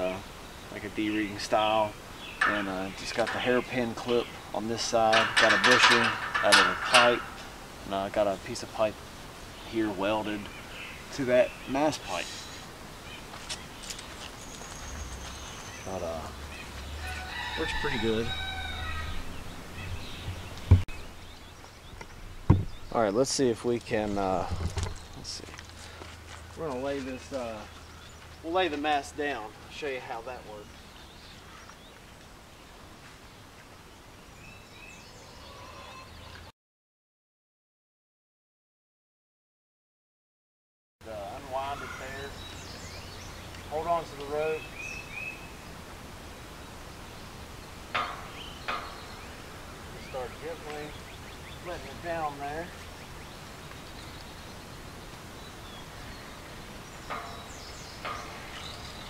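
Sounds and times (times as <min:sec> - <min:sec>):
outdoor background noise: 0:00.0 - 0:36.5, 0:41.0 - 0:59.0
bird chirps: 0:09.5 - 0:23.2, 0:46.7 - 0:59.0.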